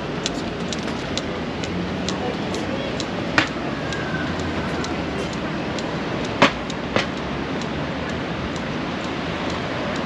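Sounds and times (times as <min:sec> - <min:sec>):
street background noise: 0:00.0 - 0:10.0
sharp knocks: 0:06.4 - 0:07.2.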